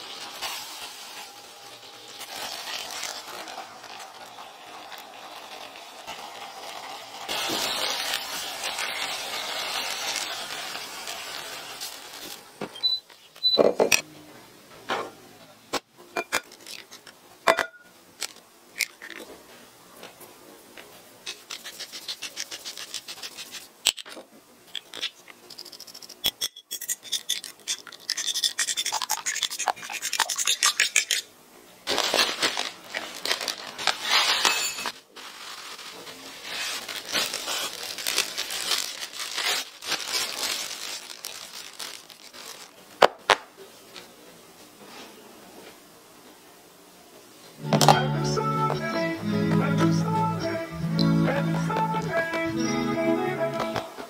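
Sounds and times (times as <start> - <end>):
fork whisking eggs in bowl: 21.3 - 23.7, 26.8 - 31.2.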